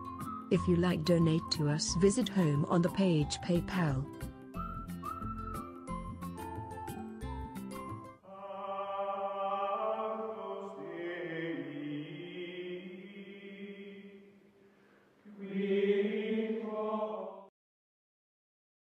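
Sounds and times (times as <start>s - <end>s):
choir-like chant: 8.2s - 14.4s, 15.3s - 17.5s.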